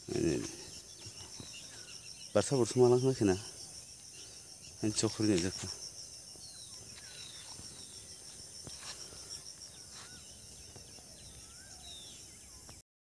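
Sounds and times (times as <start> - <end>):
bird chirps: 0.0 - 12.8
insects chirring: 0.0 - 12.8.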